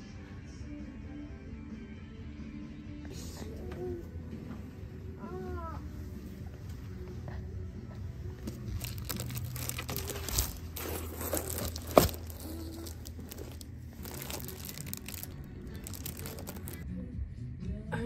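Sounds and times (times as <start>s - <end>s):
plastic portfolios crinkling: 8.4s - 16.8s.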